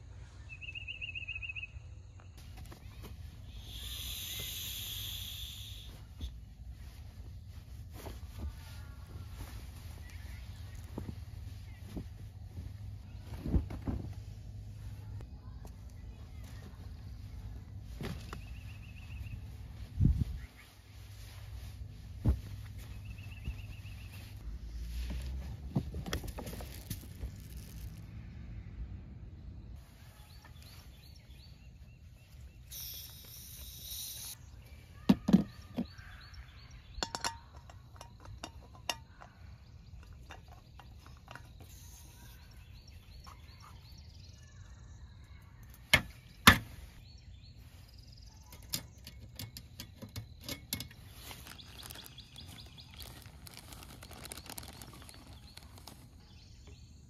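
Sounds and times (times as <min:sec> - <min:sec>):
faint birdsong: 0:00.0 - 0:57.0
brief hiss: 0:03.6 - 0:05.9
containers clinking on metal table: 0:37.0 - 0:39.4.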